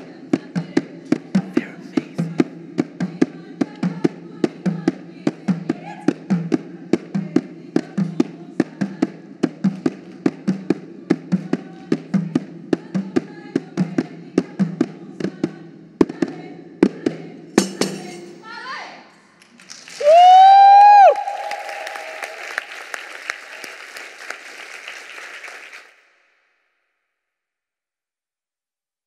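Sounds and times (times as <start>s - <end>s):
dancers clapping and slapping bodies: 19.4s - 25.9s.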